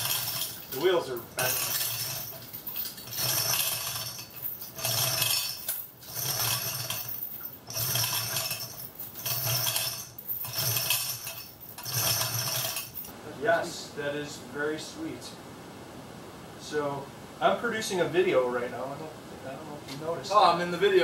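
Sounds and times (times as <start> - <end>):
chain hoist chain rattling: 0.0 - 13.1.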